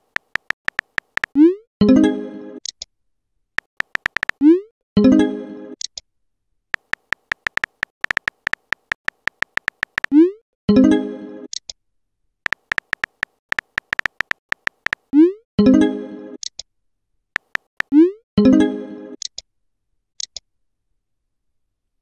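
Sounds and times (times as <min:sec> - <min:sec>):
keyboard typing clicks: 0:00.0 - 0:01.4, 0:03.6 - 0:04.4, 0:06.8 - 0:10.2, 0:12.5 - 0:15.1, 0:17.4 - 0:18.0.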